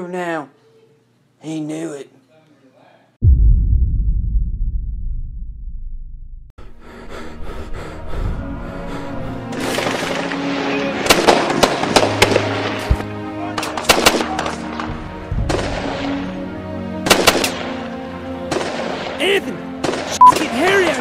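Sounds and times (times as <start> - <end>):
dramatic background music: 6.6 - 21.0
gunfire in rapid bursts: 17.1 - 17.6.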